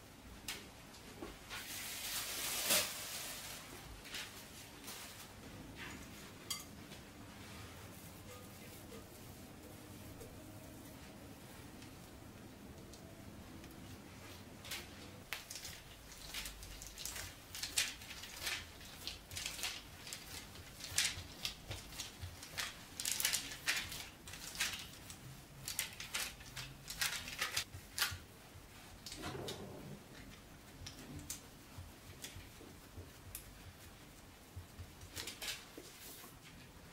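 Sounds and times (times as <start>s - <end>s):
parchment paper crinkling: 13.8s - 29.2s, 30.2s - 36.8s.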